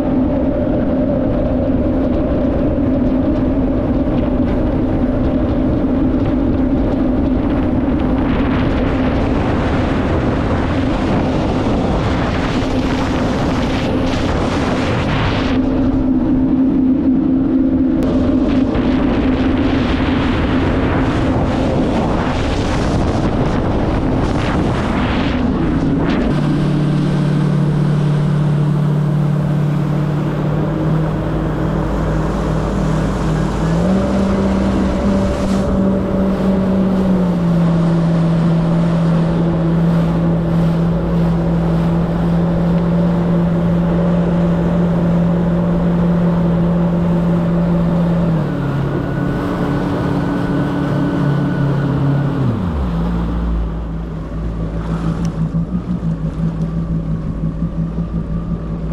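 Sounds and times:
jet ski engine running: 0.0 - 58.9.

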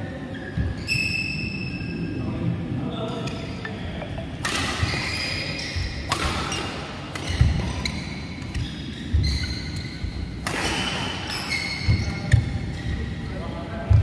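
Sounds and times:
shoes squeaking: 3.5 - 13.3
rackets striking shuttlecock: 4.4 - 5.0, 6.0 - 7.6, 10.4 - 11.4.

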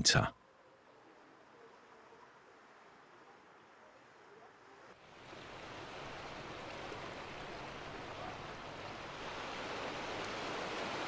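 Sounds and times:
wind: 0.0 - 11.0
water rushing: 4.9 - 11.0.

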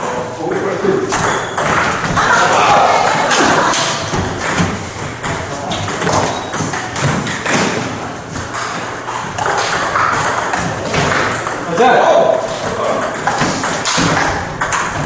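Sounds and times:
room noise: 0.0 - 15.0
ball and shoe thuds on wooden floor: 1.1 - 11.6.

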